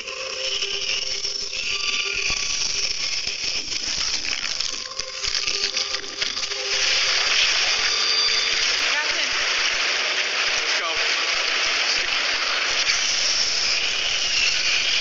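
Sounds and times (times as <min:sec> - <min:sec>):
steady hissing: 0:00.0 - 0:15.0.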